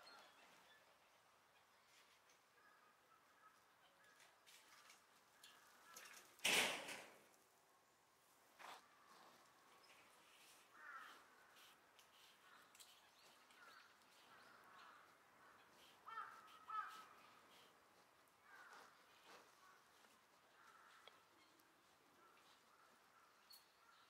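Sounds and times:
faint animal calls: 10.4s - 24.0s.

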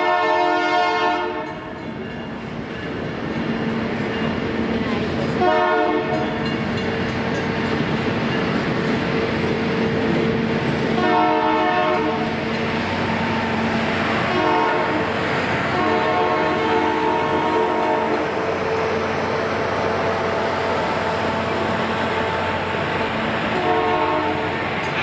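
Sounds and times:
train horn blasts: 0.0s - 1.7s, 5.4s - 6.4s, 11.0s - 12.4s, 14.2s - 18.5s, 23.5s - 24.6s
freight train cars rolling: 0.0s - 25.0s.

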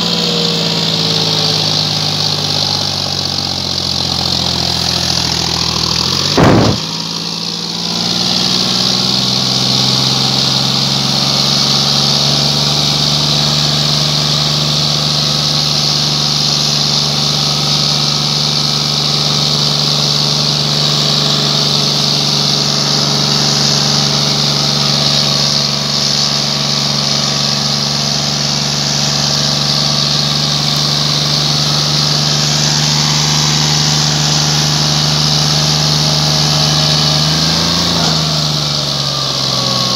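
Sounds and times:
tractor diesel engine running: 0.0s - 39.9s
loud thump: 6.2s - 7.0s.

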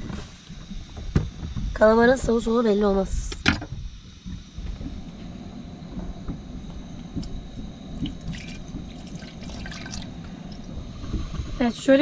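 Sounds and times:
water sloshing and dripping: 7.2s - 11.7s.

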